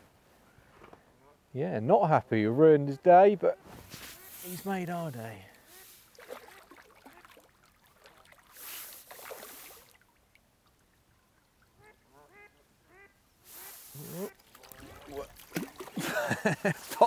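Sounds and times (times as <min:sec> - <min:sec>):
fish splashing in water: 0:05.7 - 0:10.8, 0:13.6 - 0:16.2.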